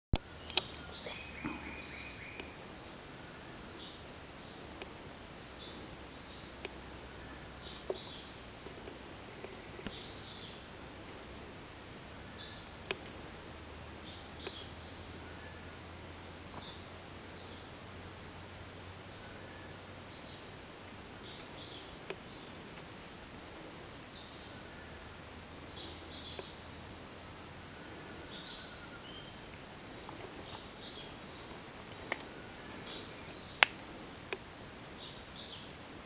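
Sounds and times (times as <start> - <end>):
sharp clicks: 0.2 - 0.8.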